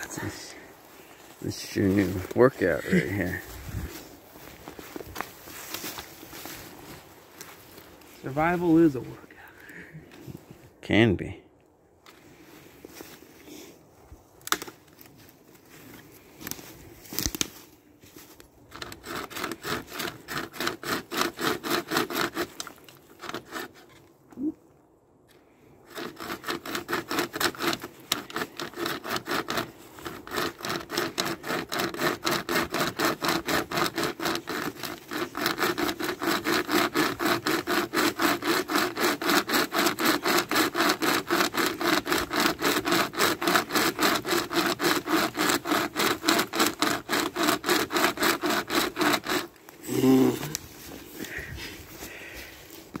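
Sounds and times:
hand chainsaw rasping through log: 1.5s - 4.5s, 18.7s - 24.0s, 25.8s - 52.4s.

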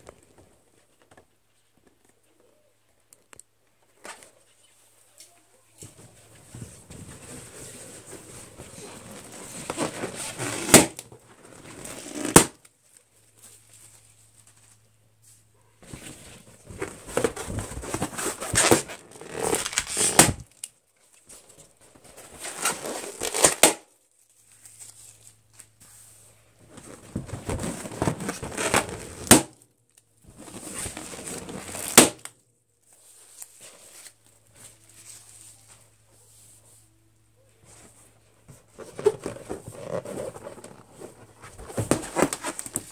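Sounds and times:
balloons rubbing and squeaking: 6.1s - 12.6s, 16.0s - 20.5s, 22.3s - 23.6s, 26.6s - 29.3s, 30.3s - 32.2s, 38.1s - 42.9s
balloons popping: 8.8s - 12.7s, 17.2s - 20.5s, 22.6s - 23.9s, 27.2s - 29.6s, 30.9s - 32.3s.

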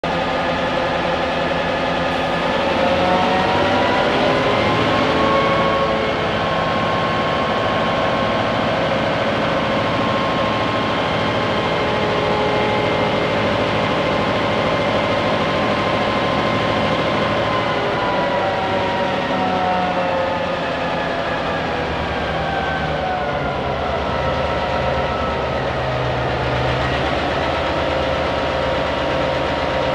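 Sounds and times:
locomotive diesel engine running: 0.0s - 29.9s.

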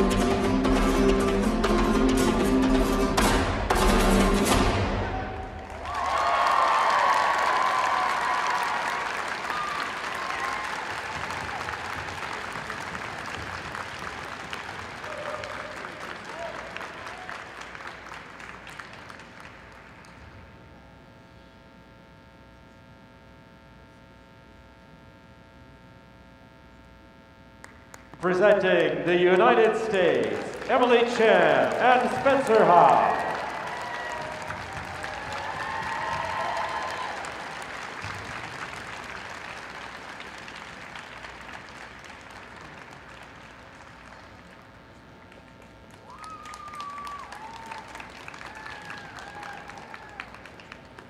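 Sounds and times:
audience applause: 5.1s - 20.3s, 27.9s - 51.0s
steady hum: 7.6s - 51.0s.

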